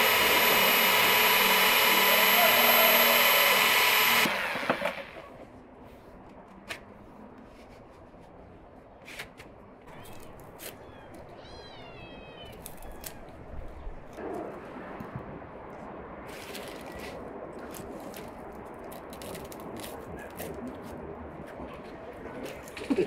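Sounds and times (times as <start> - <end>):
cat meowing: 9.9 - 13.4.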